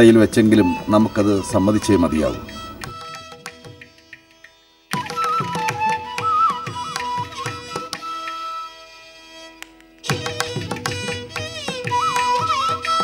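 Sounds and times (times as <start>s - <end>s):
gliding classical melody: 0.0s - 3.6s.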